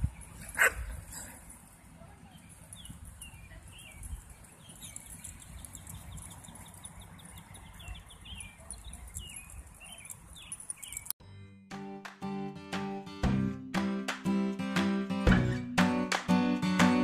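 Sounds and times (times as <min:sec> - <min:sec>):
birds chirping: 0:00.0 - 0:11.2.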